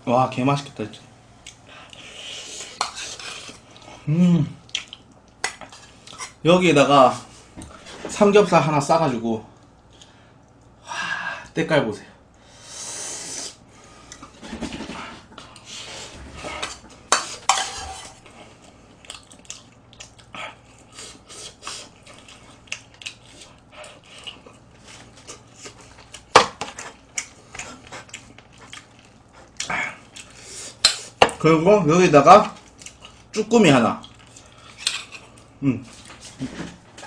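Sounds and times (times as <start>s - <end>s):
person eating: 1.4s - 6.4s, 12.7s - 31.3s, 32.4s - 36.7s
spoon scraping metal pot: 16.6s - 18.2s.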